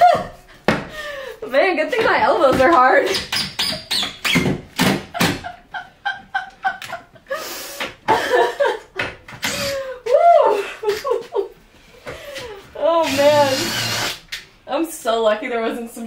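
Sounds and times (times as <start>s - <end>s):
woman laughing hard: 0.0s - 1.3s, 5.1s - 11.6s.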